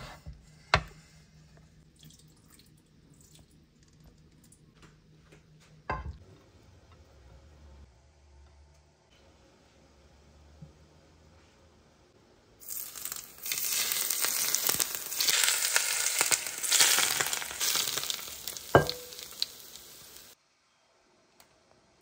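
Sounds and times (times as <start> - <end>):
hot oil sizzling: 12.6 - 20.4.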